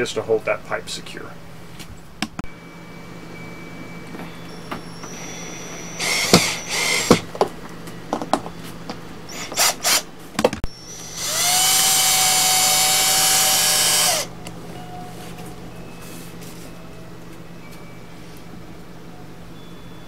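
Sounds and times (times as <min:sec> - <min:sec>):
power drill running: 0:05.0 - 0:07.3, 0:09.3 - 0:10.0, 0:10.7 - 0:14.3
handling knocks and clatter: 0:06.3 - 0:09.0.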